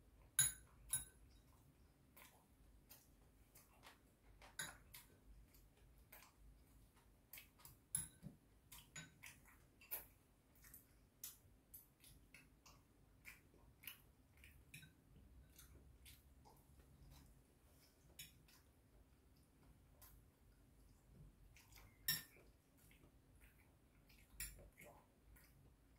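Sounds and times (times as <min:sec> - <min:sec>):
chopsticks clicking on ceramic bowls: 0:07.4 - 0:10.1, 0:21.8 - 0:22.5.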